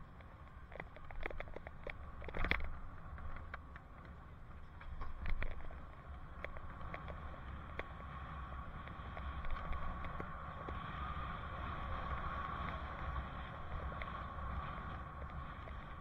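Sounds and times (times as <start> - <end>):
bicycle clicks and rattles: 0.0 - 16.0
wind and road rumble: 0.0 - 16.0.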